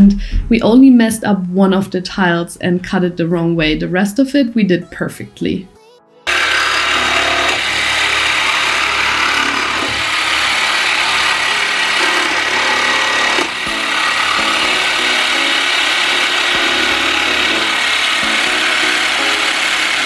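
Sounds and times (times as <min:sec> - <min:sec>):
electric jigsaw cutting wood: 0:06.3 - 0:20.0.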